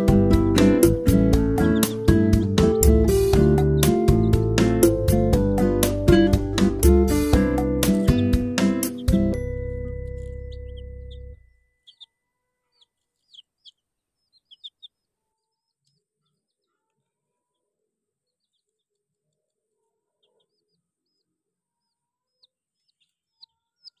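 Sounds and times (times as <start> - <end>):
chicks peeping: 0.0 - 6.4, 7.1 - 19.2, 20.0 - 24.0
background music: 0.0 - 11.6.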